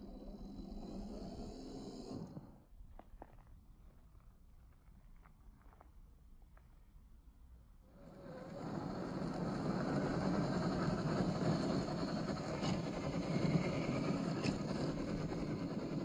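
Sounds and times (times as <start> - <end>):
toy car motor churning sand: 0.0 - 2.6, 8.0 - 16.0.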